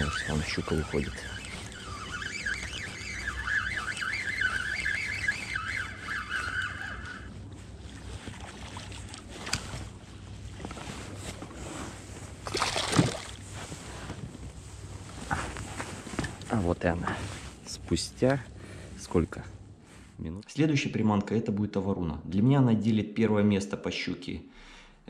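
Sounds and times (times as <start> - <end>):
fishing reel whirring: 0.0 - 8.2.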